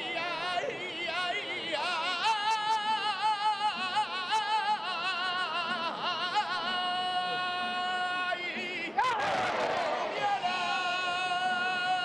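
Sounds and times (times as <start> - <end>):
man singing unaccompanied: 0.0 - 12.0.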